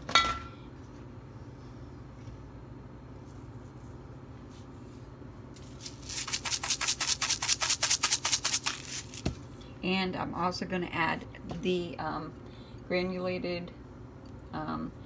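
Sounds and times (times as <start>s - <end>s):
pepper mill grinding: 5.6s - 9.3s.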